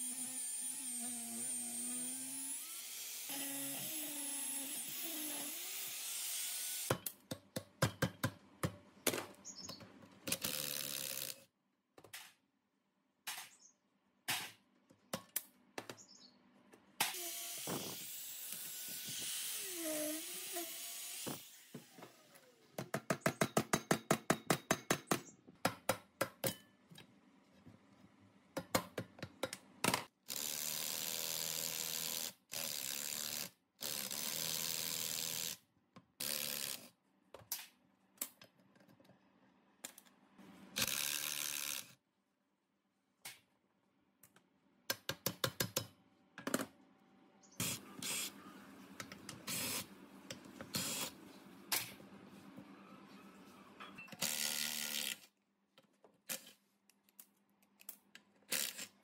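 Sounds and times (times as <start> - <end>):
power tool bursts: 54.2 - 55.2.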